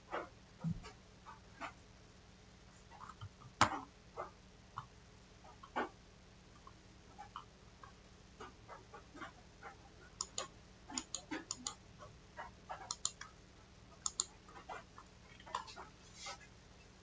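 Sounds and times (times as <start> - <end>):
computer mouse clicking: 10.2 - 11.8, 12.8 - 13.3, 14.0 - 14.4, 15.3 - 15.7.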